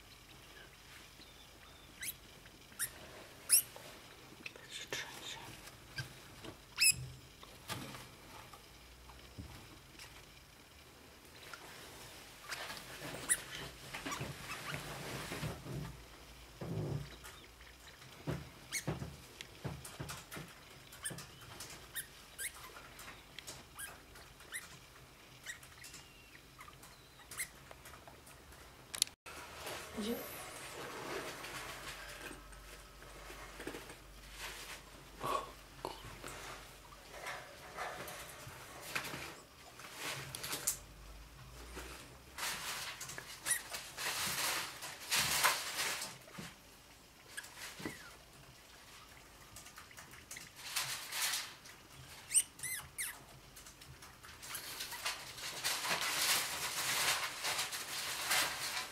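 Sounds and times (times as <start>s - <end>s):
high squeaks and chirps: 0.2s - 3.8s, 6.7s - 7.1s, 18.6s - 19.0s, 21.0s - 27.6s, 52.0s - 53.2s
rustling in paper bedding: 41.6s - 46.6s, 54.4s - 58.9s
tissue paper rustling: 54.8s - 58.9s.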